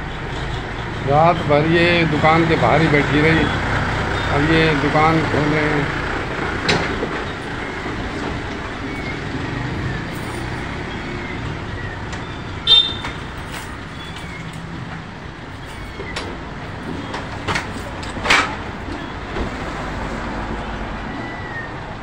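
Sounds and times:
street traffic: 0.0 - 22.0
high-pitched beep: 12.7 - 13.2.

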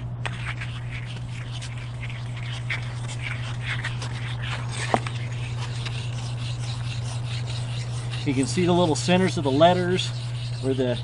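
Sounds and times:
steady low hum: 0.0 - 11.0
block scrubbing on stone: 0.2 - 11.0.

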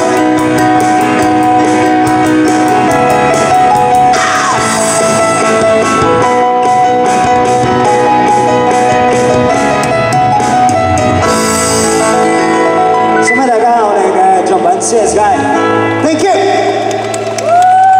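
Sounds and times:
live band playing: 0.0 - 17.6.

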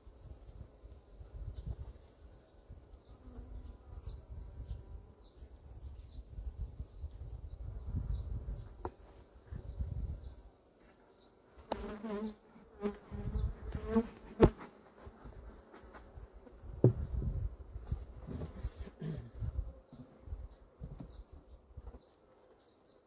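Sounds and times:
honeybees buzzing: 7.6 - 23.0.

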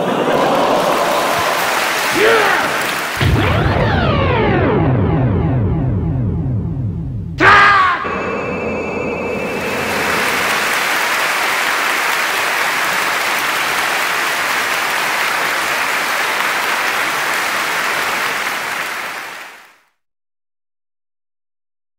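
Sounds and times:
audience applauding: 0.0 - 3.4, 9.4 - 19.8.

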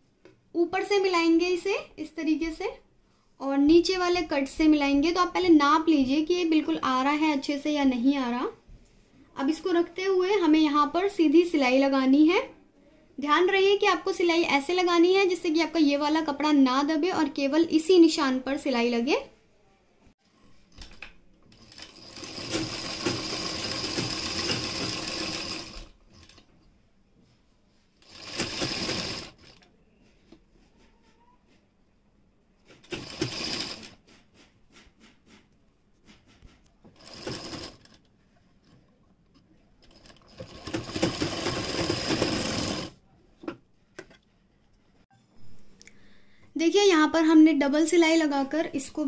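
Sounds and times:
sewing machine running: 21.5 - 26.4, 28.0 - 29.6, 32.8 - 34.0, 37.0 - 38.0, 39.8 - 43.0.

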